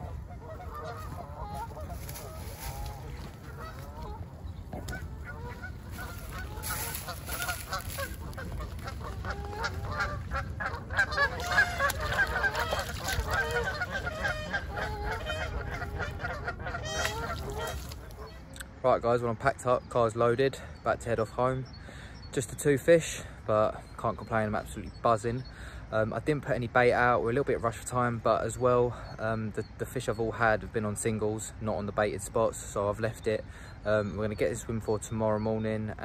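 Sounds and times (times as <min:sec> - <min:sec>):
geese honking: 0:00.0 - 0:18.5.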